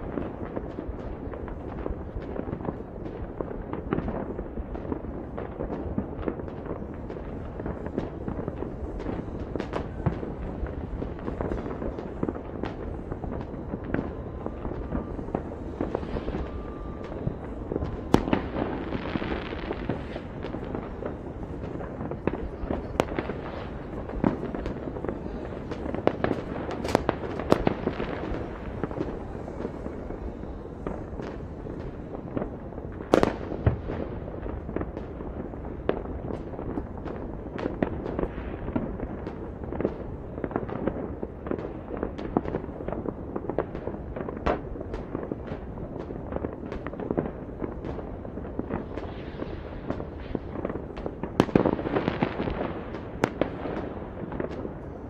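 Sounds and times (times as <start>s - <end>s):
distant fireworks bangs: 0.0s - 55.0s
firecracker cracks: 0.0s - 55.0s.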